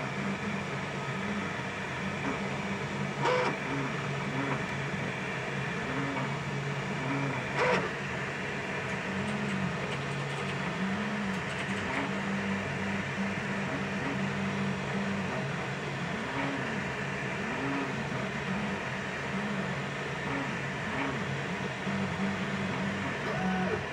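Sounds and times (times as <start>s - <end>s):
steady hum: 0.0s - 23.9s
brief louder printer sounds: 3.2s - 4.6s, 7.0s - 8.0s, 8.9s - 12.2s, 21.9s - 23.9s.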